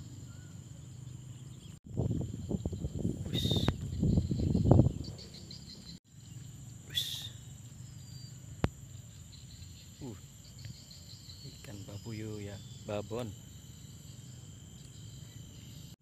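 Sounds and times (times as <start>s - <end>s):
insects chirring: 0.0s - 16.0s
sharp high calls: 3.2s - 3.9s, 6.9s - 7.6s.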